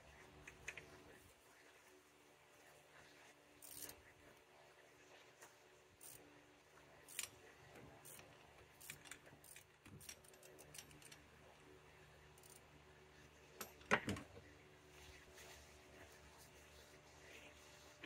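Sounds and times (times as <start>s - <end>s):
ratchet clicking: 3.6s - 3.9s, 6.0s - 6.2s, 7.1s - 7.3s, 8.8s - 11.2s, 12.4s - 12.6s.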